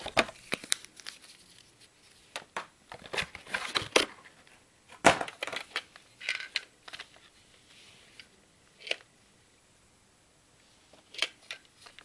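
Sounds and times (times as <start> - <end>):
plastic packaging crackling: 0.0 - 1.8.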